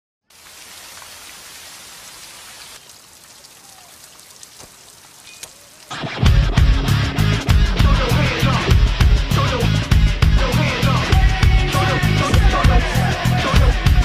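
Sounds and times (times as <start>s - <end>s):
single raindrops: 0.3s - 6.1s
steady rain falling: 0.3s - 6.4s
loud rock music: 5.9s - 14.0s.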